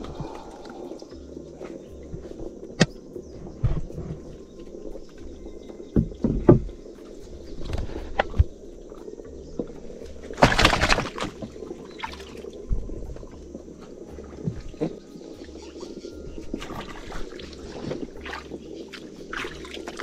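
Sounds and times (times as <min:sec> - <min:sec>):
river water noise: 0:00.0 - 0:20.0
water splash: 0:10.2 - 0:12.6, 0:16.5 - 0:20.0.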